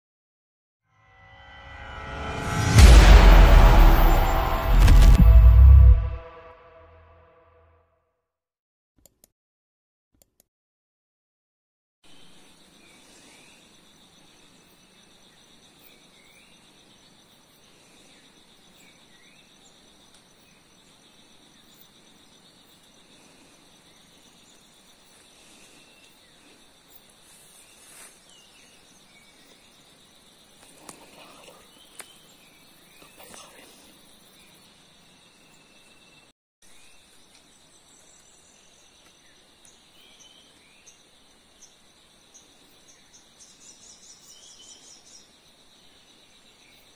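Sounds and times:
insects buzzing: 12.1s - 35.9s.

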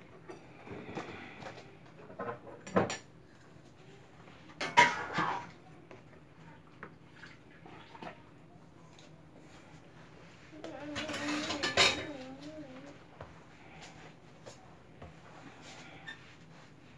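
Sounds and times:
utensils clattering on table: 10.8s - 12.4s.

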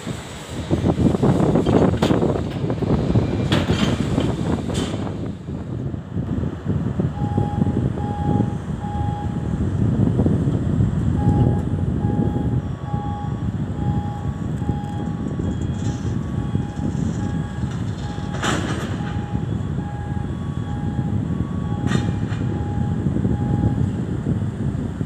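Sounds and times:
steady low rumble: 0.0s - 25.0s
crane warning beeps: 7.0s - 9.7s, 11.0s - 24.3s.

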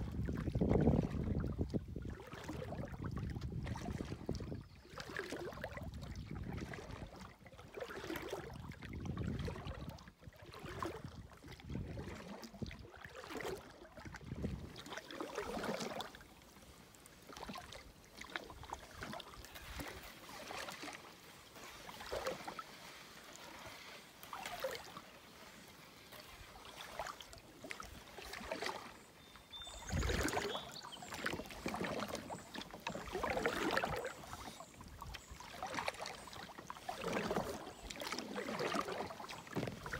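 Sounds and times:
paddle splashing water: 0.0s - 39.9s
splash and thump: 17.3s - 21.0s, 29.9s - 34.1s, 36.8s - 39.9s.

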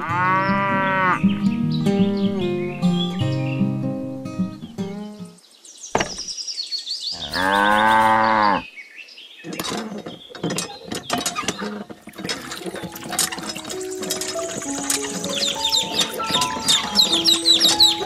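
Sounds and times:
cow mooing: 0.0s - 1.2s, 7.2s - 8.6s
small clicks and knocks: 9.5s - 17.9s.

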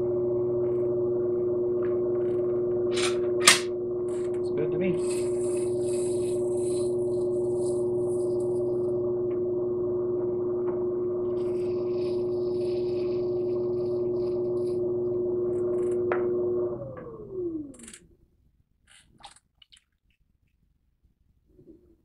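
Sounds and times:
pottery wheel motor hum: 0.0s - 18.2s
sharp click: 3.0s - 3.7s.

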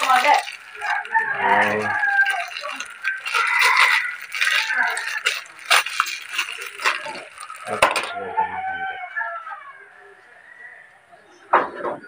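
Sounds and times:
rooster crowing: 0.8s - 5.5s, 7.9s - 11.0s.

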